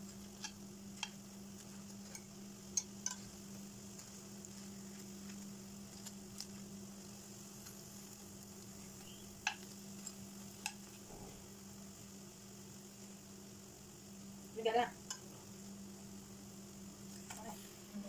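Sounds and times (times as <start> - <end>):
spring rolls sizzling in oil: 0.0 - 18.0
metal tongs clicking on pan: 0.3 - 1.3, 2.0 - 3.4, 9.4 - 10.9, 15.0 - 15.3.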